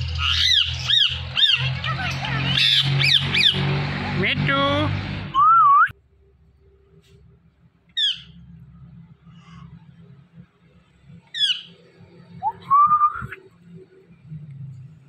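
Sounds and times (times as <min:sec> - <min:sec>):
parakeet calls: 0:00.0 - 0:03.7, 0:08.0 - 0:08.5, 0:11.3 - 0:12.6.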